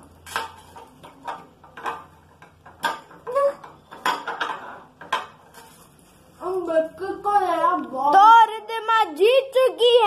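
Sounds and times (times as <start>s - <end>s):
metal plates clinking on glass: 0.2s - 5.8s.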